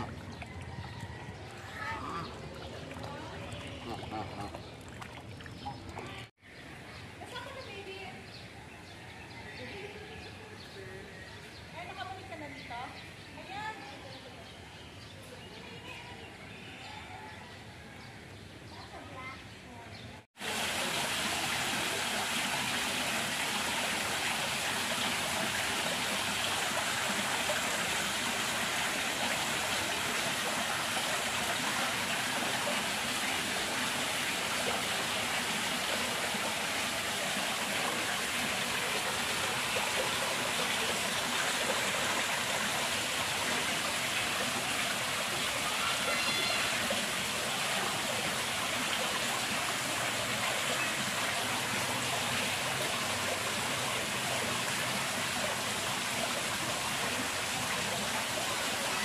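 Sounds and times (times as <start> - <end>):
running water rushing: 0.0 - 6.4, 20.4 - 59.0.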